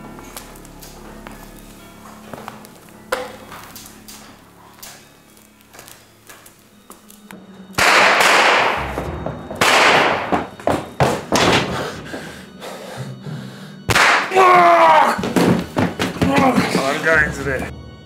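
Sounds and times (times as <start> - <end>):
heavy thuds: 7.4 - 12.4, 15.2 - 17.7.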